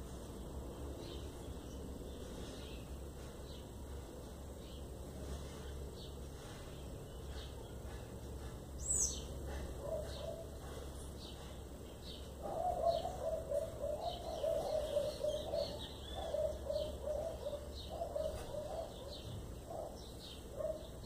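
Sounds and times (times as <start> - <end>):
dove cooing: 9.5 - 10.9, 12.4 - 21.0.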